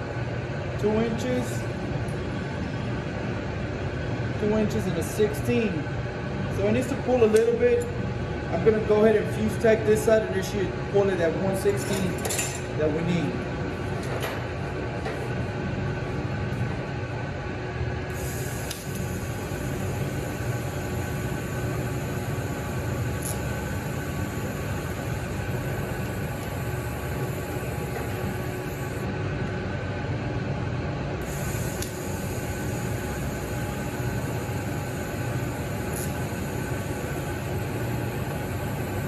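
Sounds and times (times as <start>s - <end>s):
steady low hum: 0.0s - 39.0s
welding arc hissing: 18.1s - 29.0s, 31.2s - 39.0s.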